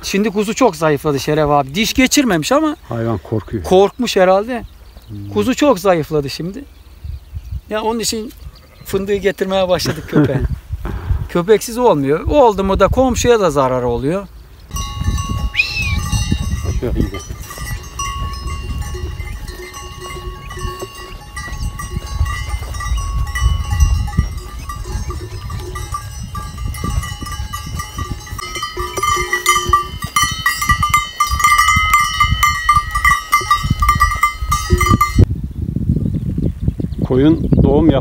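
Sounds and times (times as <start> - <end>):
sheep bells clinking: 14.7 - 35.3.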